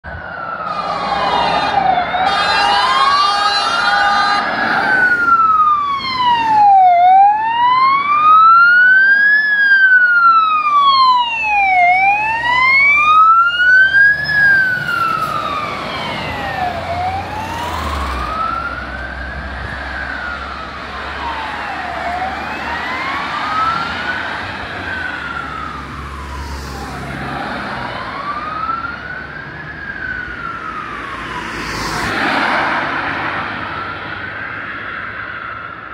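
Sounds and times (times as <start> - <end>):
fire engine siren wailing: 0.0 - 35.9.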